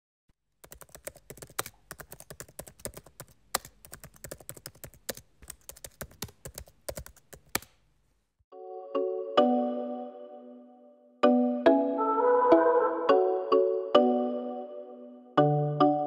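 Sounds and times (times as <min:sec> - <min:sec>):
keyboard typing clicks: 0:00.6 - 0:07.8.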